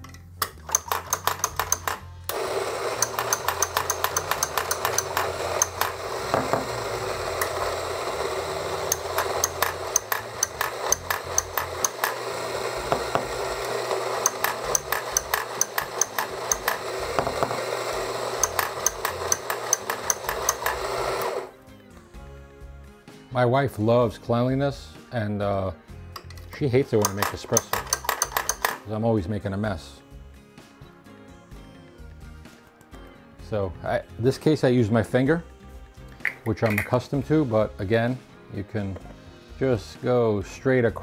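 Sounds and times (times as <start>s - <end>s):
doser lever clacking: 0.0s - 2.0s, 3.0s - 5.9s, 26.2s - 28.8s
coffee grinder motor grinding: 0.7s - 21.6s, 26.9s - 28.8s.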